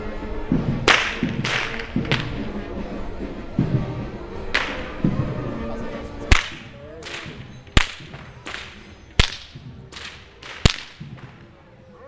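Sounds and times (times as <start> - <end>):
whip cracking: 0.8 - 2.6, 4.5 - 5.1, 6.3 - 11.5.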